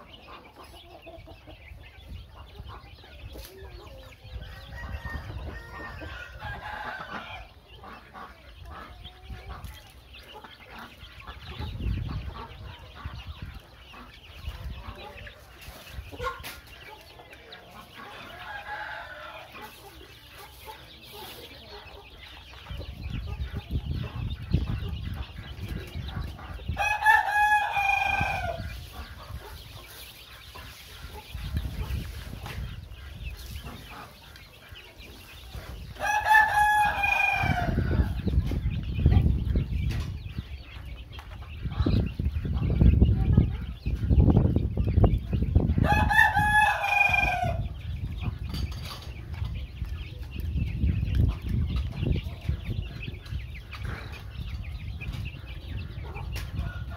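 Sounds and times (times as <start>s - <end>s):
chickens clucking: 0.0s - 56.9s
rooster crowing: 4.4s - 7.5s, 36.0s - 38.2s, 45.8s - 47.6s.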